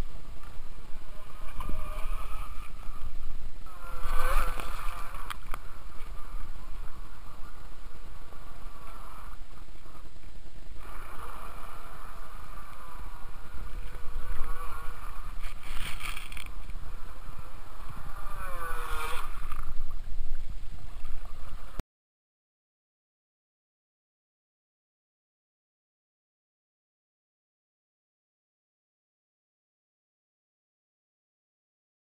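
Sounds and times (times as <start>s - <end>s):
model speedboat motor whining: 0.0s - 19.9s.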